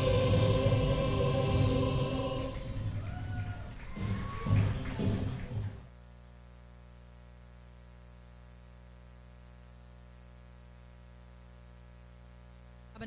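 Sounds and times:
singing anthem: 0.0 - 5.5
steady electrical hum: 0.0 - 13.0.

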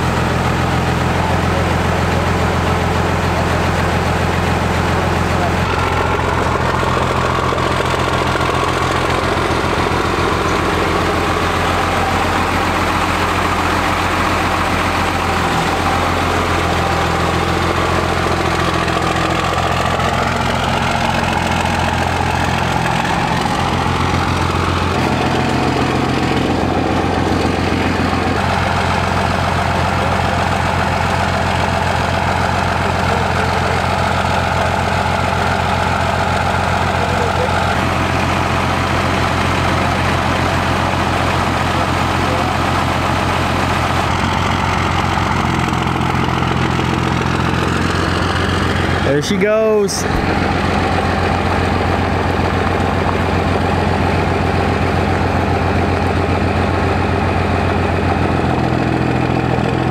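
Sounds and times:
diesel engine idling: 0.0 - 59.9.

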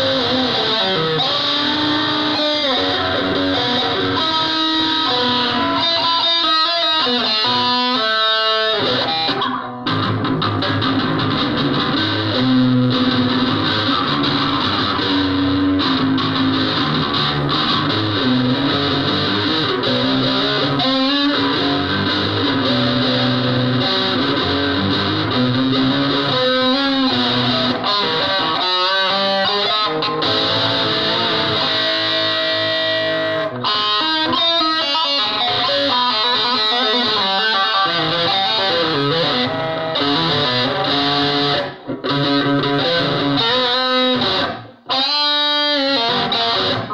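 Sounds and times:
distorted electric guitar: 0.0 - 46.9.

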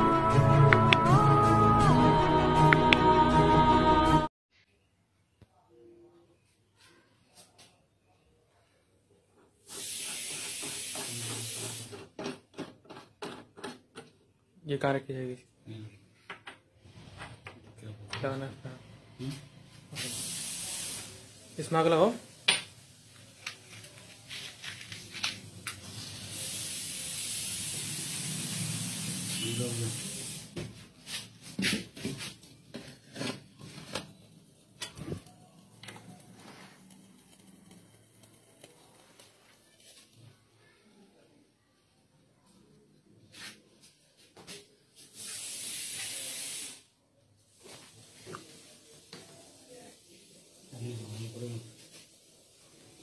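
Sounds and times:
steady hiss: 9.6 - 12.0, 19.9 - 31.3, 45.0 - 53.0
rubbing and scraping on wood: 31.1 - 34.2.

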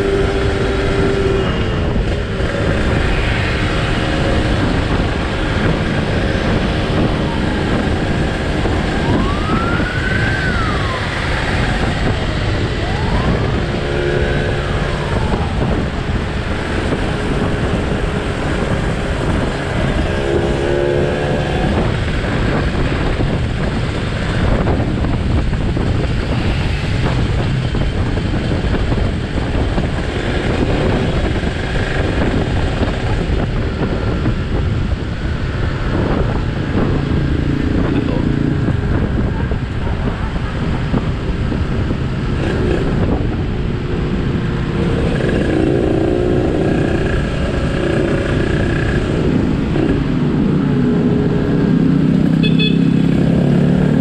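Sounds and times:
motorcycle engine at speed: 0.0 - 54.0
wind rushing over microphone: 0.0 - 54.0
rising and falling wail: 6.4 - 15.9.

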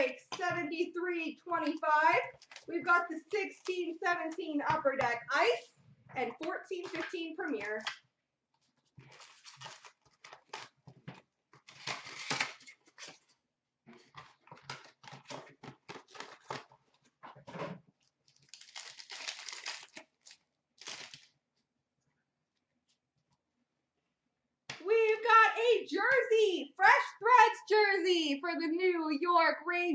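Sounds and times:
wrappers crinkling: 2.1 - 4.4, 8.9 - 10.9, 11.6 - 13.3, 18.2 - 21.4
foil packs tearing: 9.0 - 10.8, 11.6 - 13.2, 18.4 - 21.3.

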